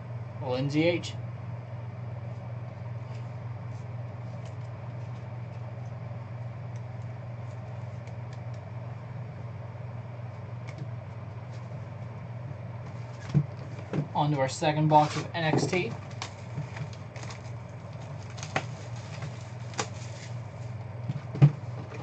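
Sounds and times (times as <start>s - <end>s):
low background hum: 0.0s - 22.0s.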